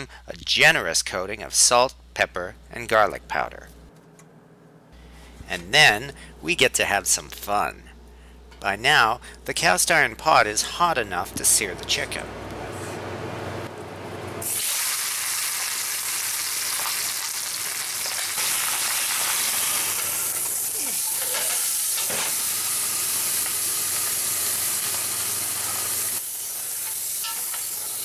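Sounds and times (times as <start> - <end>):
chicken sizzling in a pot: 14.4 - 28.0.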